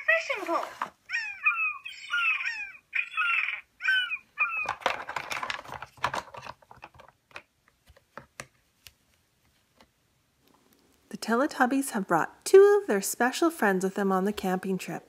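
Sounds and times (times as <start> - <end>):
plastic toy pieces clacking: 4.5 - 7.5.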